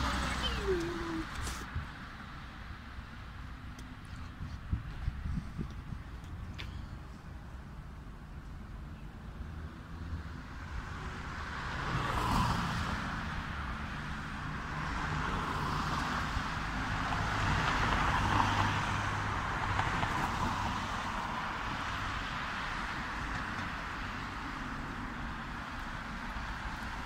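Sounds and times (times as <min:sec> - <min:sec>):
cars passing: 0:00.0 - 0:27.0.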